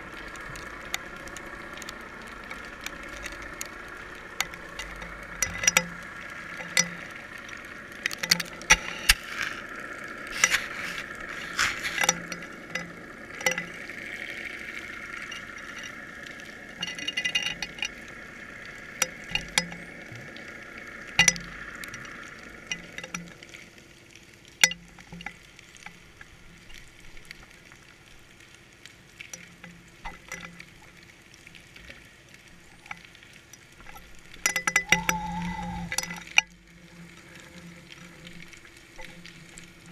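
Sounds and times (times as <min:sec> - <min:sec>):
underwater clicks and knocks: 0:00.4 - 0:07.3, 0:08.0 - 0:09.6, 0:10.3 - 0:13.8, 0:15.1 - 0:18.2, 0:18.9 - 0:20.2, 0:21.1 - 0:23.5, 0:24.6 - 0:26.0, 0:29.2 - 0:30.9, 0:33.8 - 0:39.9
steady high hum: 0:33.8 - 0:39.9.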